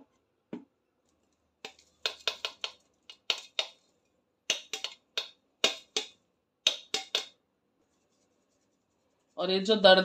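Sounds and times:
metal strainer tapping: 0:01.6 - 0:03.8, 0:04.5 - 0:07.4.

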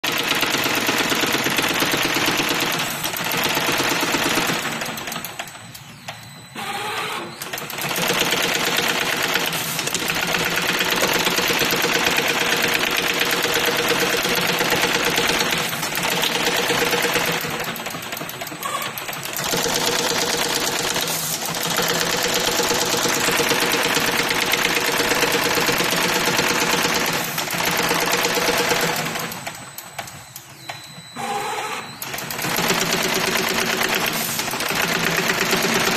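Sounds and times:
machine clattering: 0:07.4 - 0:31.0.

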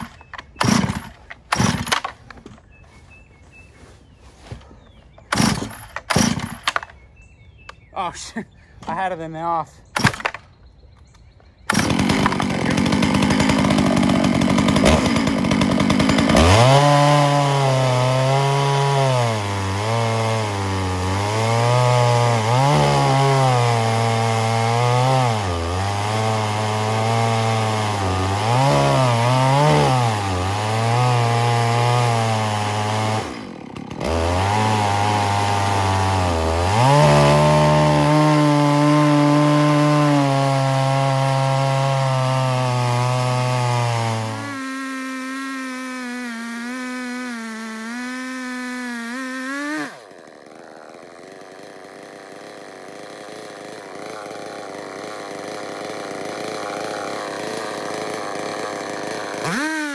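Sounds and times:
chainsaw ripping a log: 0:00.0 - 0:02.4, 0:05.3 - 0:06.8, 0:10.0 - 0:10.4, 0:11.7 - 0:59.9.

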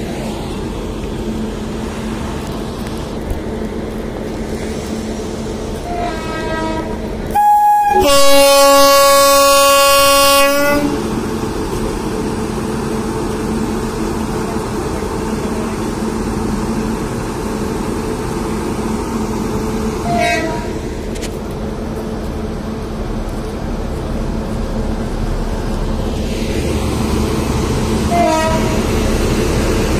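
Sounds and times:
train rumbling past: 0:00.0 - 0:29.9
locomotive air horn blasts: 0:05.8 - 0:11.0, 0:20.0 - 0:20.8, 0:28.1 - 0:28.9.

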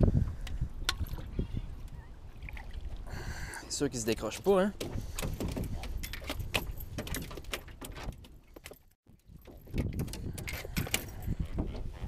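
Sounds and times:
knocks and rattles on boat floor: 0:04.4 - 0:08.8, 0:09.4 - 0:12.0.

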